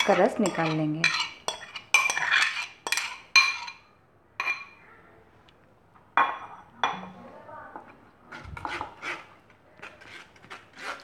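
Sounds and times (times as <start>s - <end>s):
glass bowl clinking on steel strainer: 0.0s - 3.8s.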